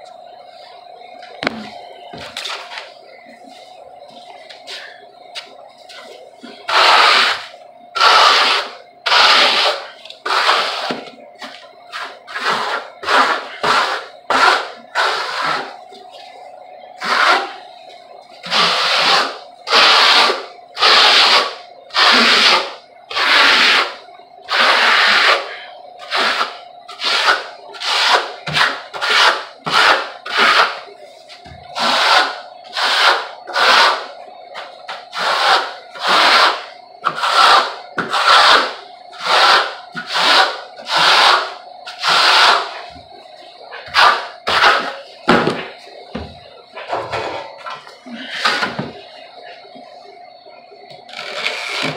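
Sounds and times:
trowel scraping plaster: 6.7 - 11.0, 11.9 - 15.7, 24.5 - 30.8, 31.8 - 34.1, 34.9 - 42.8, 43.9 - 45.0.

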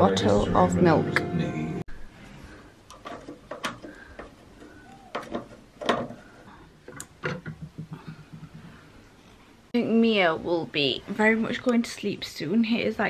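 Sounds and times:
window shutters clicking and knocking: 2.9 - 7.8.

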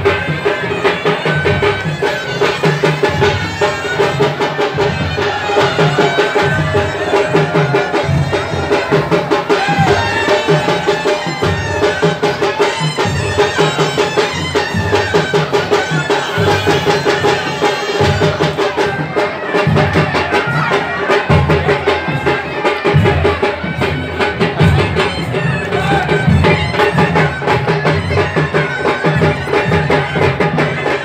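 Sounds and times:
fast drumming: 0.0 - 31.0
reedy wind instruments melody: 0.0 - 31.0.

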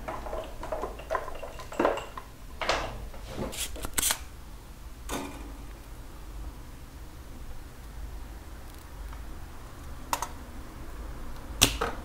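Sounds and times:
scraping on workbench: 2.0 - 3.8.

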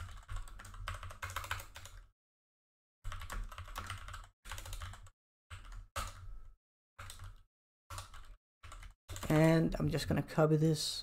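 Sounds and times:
typing on computer keyboard: 0.0 - 2.1, 3.1 - 6.3, 7.0 - 9.5.

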